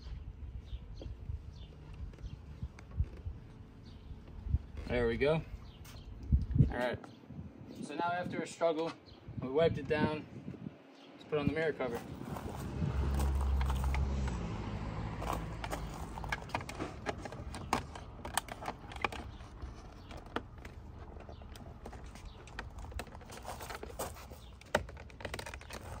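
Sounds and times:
plastic shell clicks and scrapes: 15.2s - 26.0s.

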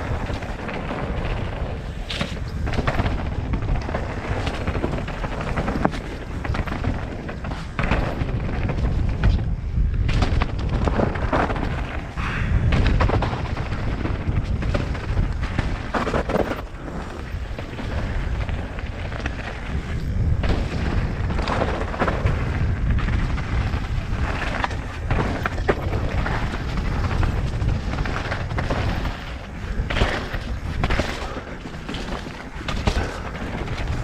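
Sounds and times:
bike knocking and rattling: 0.0s - 34.0s
tyres crunching over rock: 0.0s - 34.0s
wind rumble on microphone: 0.0s - 34.0s.

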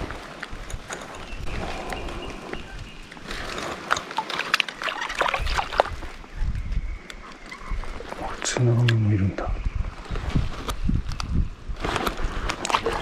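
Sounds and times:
fish splashing in water: 3.3s - 6.1s, 12.6s - 13.0s.

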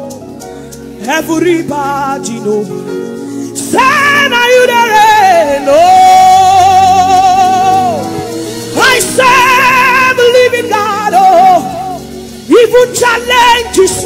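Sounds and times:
instrumental backing music: 0.0s - 14.0s
woman singing: 3.6s - 14.0s.

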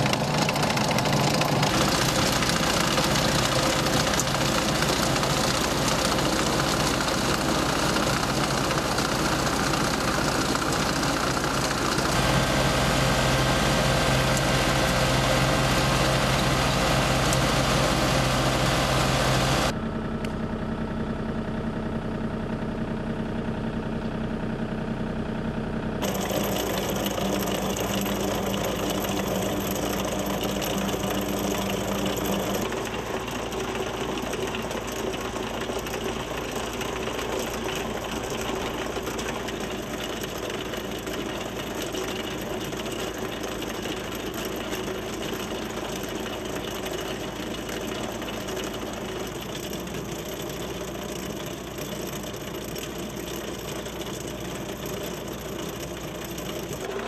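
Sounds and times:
tractor engine under load: 0.0s - 19.8s, 26.0s - 57.0s
trencher chain digging: 26.0s - 32.7s.

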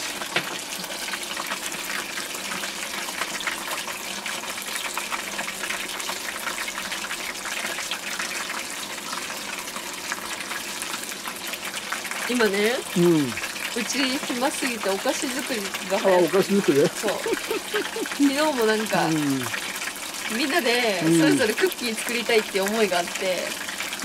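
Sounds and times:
chicken deep-frying in oil: 0.0s - 24.0s.

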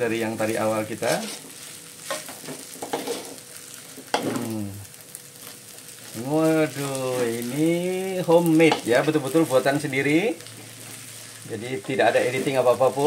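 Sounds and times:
noodles sizzling in a wok: 0.0s - 13.0s
spatula scraping a pan: 1.2s - 3.4s.

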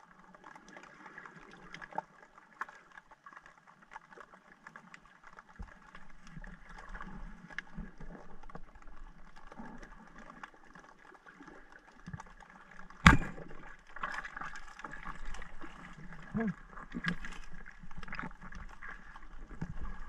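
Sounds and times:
speargun firing crack: 13.0s - 13.6s.

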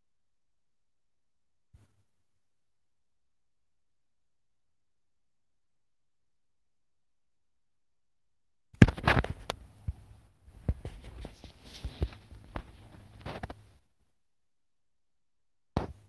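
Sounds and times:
paper rustling: 10.6s - 13.7s.

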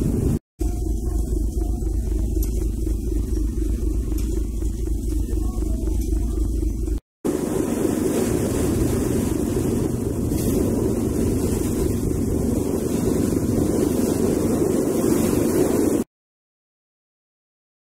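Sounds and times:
ferry rushing noise: 0.0s - 16.1s
water along hull: 0.0s - 16.1s
wind on microphone: 0.0s - 16.1s.

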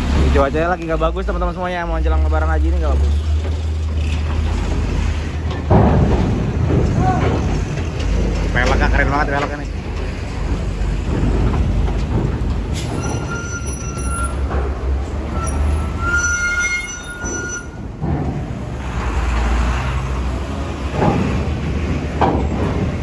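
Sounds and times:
heavy vehicle rumbling: 0.0s - 23.0s
high brake squeal: 12.8s - 14.5s, 15.2s - 17.8s.

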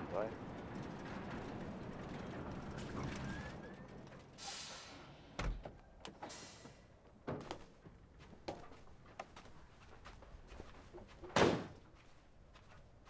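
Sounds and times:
dull thump: 10.9s - 11.9s.

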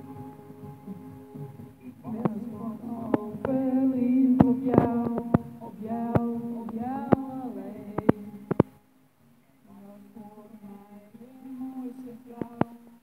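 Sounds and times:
woman singing long held notes: 0.0s - 8.6s
soft backing track: 0.0s - 13.0s.

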